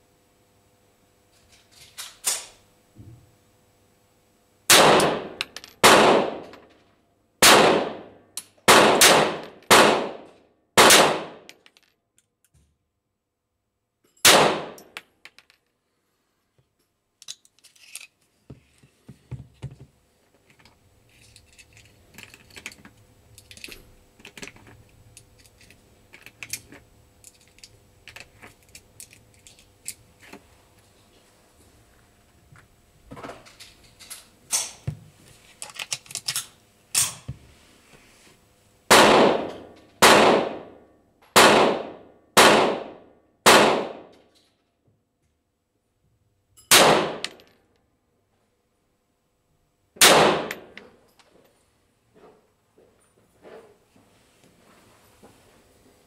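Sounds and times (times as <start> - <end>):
pistol shots: 4.7 - 6.5, 7.4 - 8.1, 8.7 - 11.5, 14.2 - 14.8, 38.9 - 40.7, 41.4 - 44.1, 46.7 - 47.4, 50.0 - 50.7.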